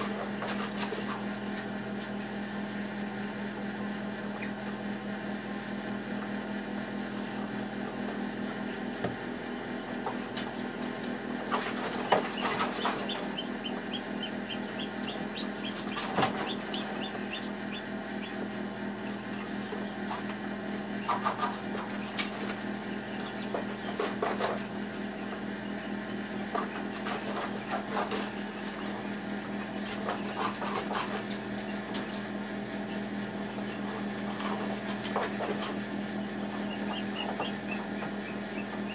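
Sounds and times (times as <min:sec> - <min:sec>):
incubator hum: 0:00.0 - 0:38.9
chick peeping: 0:04.2 - 0:04.9, 0:11.5 - 0:20.2, 0:32.8 - 0:38.9.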